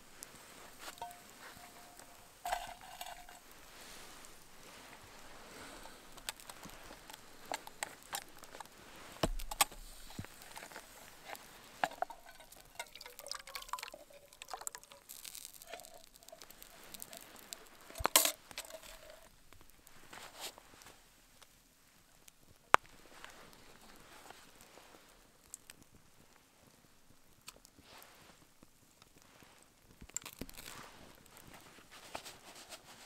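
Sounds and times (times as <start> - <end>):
campfire crackling: 0.0 - 33.0
metal pots clinking: 0.7 - 8.7, 9.4 - 19.3
thick liquid pouring: 9.4 - 19.3.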